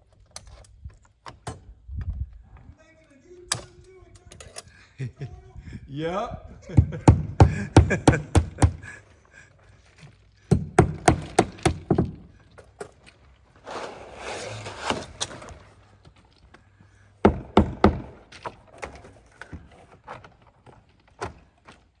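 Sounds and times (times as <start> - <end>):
knocks on vinyl siding: 10.5 - 12.3, 17.2 - 18.3
rough scraping: 12.4 - 16.3.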